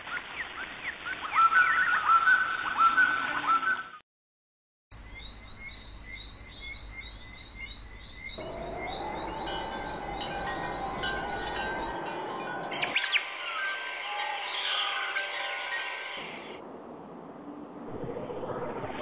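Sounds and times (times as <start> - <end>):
rapid high bird chirps: 5.0 - 11.9
birds chirping: 5.0 - 16.6.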